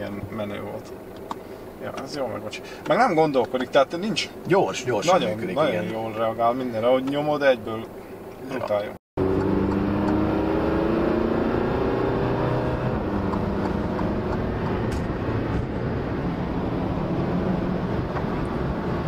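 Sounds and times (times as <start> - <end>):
road noise: 0.0 - 19.0
car engine accelerating: 9.2 - 19.0.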